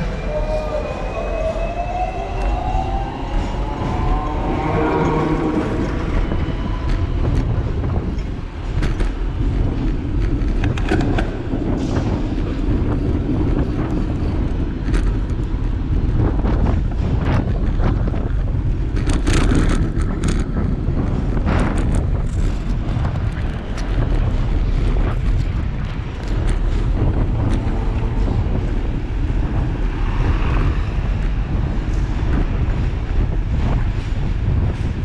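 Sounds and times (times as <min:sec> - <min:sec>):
street traffic: 0:00.0 - 0:35.0
wind rumbling on microphone: 0:00.0 - 0:35.0
sharp clicks and rattles: 0:05.8 - 0:28.7.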